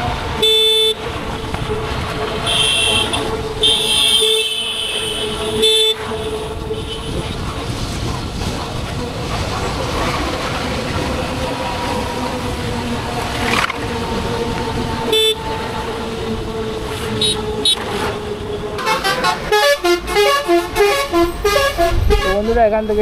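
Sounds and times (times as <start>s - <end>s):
wind and road noise: 0.0s - 23.0s
vehicle horns: 0.3s - 7.4s, 15.0s - 15.8s, 17.0s - 23.0s.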